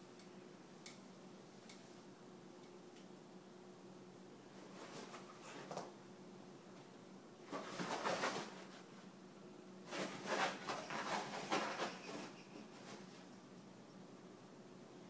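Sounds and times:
dogs scuffling on fabric bed: 7.5s - 8.9s, 9.9s - 13.3s.

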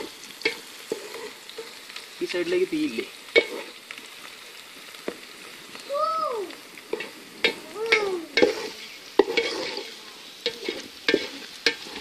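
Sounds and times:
shallots sizzling in oil: 0.0s - 12.0s
wooden spatula scraping a pot: 0.4s - 1.8s, 3.4s - 3.8s, 6.9s - 12.0s.

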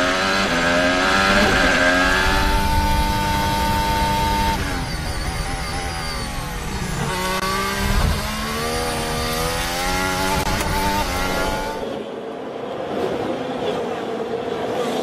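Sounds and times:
racing car engine: 0.0s - 15.0s.

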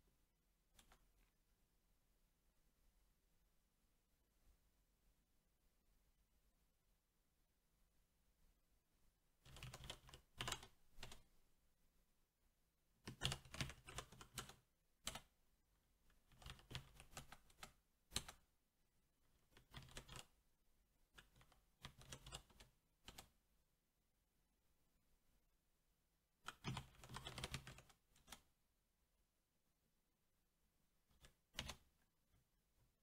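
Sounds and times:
mechanical keyboard typing: 9.4s - 11.2s, 13.1s - 15.3s, 16.2s - 18.4s, 19.5s - 20.3s, 21.2s - 23.3s, 26.4s - 28.4s, 31.2s - 31.9s.

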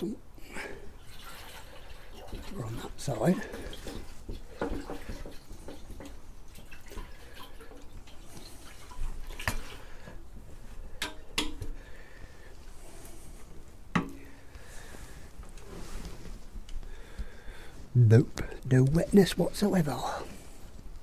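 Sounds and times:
fuel sloshing in a tank: 0.5s - 10.6s.

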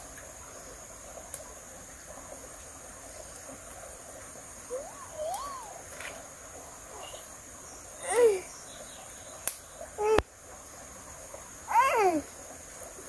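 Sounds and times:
insects chirring: 0.0s - 13.0s
rising and falling calls: 4.7s - 6.2s, 6.9s - 7.3s.

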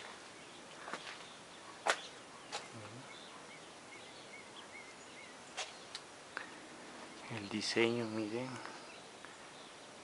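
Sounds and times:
small bird chirping: 0.0s - 10.0s
footsteps on dirt and stone: 0.8s - 2.8s.

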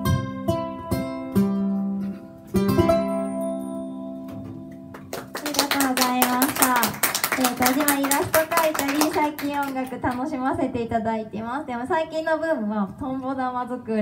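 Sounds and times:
ukulele strumming: 0.0s - 5.3s
audience applause: 4.9s - 9.8s.

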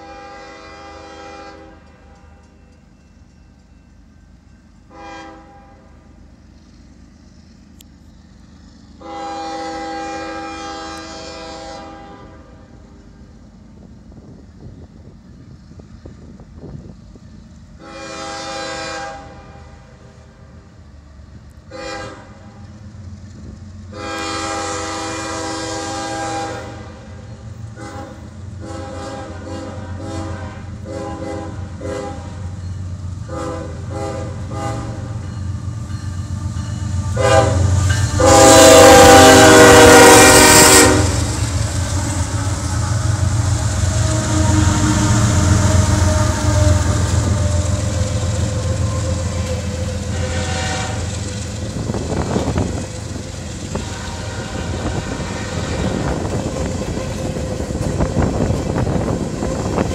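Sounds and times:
locomotive air horn blasts: 0.0s - 2.4s, 4.9s - 6.1s, 9.0s - 12.8s, 17.8s - 20.1s, 21.7s - 22.7s, 23.9s - 32.6s, 33.2s - 35.3s, 36.8s - 59.9s
diesel train rumble: 0.0s - 59.9s.

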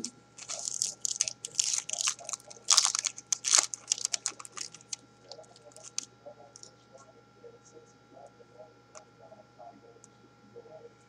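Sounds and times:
foil wrapper tearing and crumpling: 0.4s - 6.0s.

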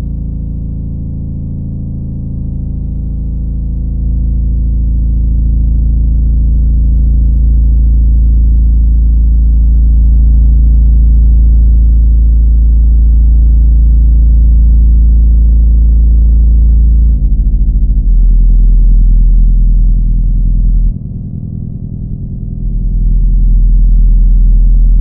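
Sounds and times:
deep droning hum: 0.0s - 25.0s.

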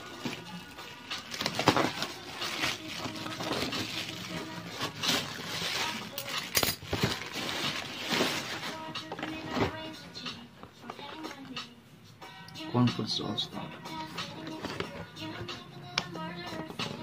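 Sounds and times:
plastic bag crinkling and rustling: 0.0s - 9.8s
background music: 0.0s - 17.0s.

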